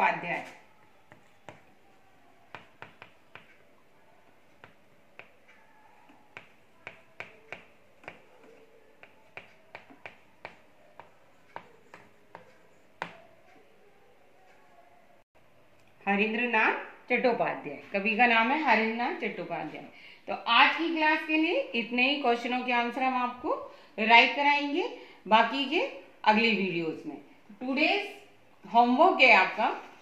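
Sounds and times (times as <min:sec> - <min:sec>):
chalk tapping on blackboard: 0:02.5 - 0:03.6, 0:04.6 - 0:05.6, 0:06.3 - 0:13.2.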